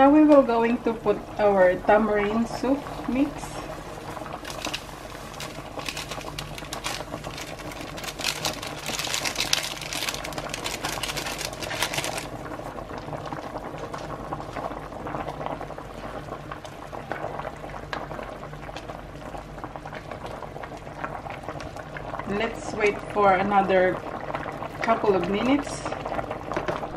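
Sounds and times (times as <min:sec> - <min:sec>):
broth bubbling in a pot: 0:00.0 - 0:26.9
powder shaken from a packet: 0:04.4 - 0:12.4.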